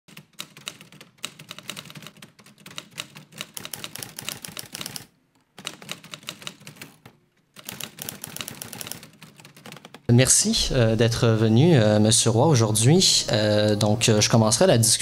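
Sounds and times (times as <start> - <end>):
typewriter typing: 0.1 - 10.1.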